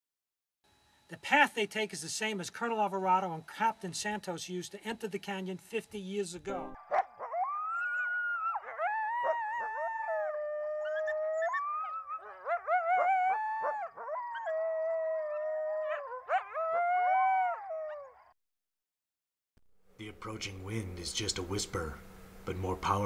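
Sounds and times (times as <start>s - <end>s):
coyotes howling: 6.8s - 18.3s.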